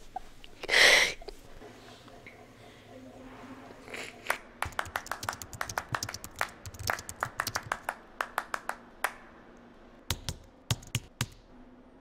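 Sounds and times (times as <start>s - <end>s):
computer keyboard typing: 4.6s - 8.0s.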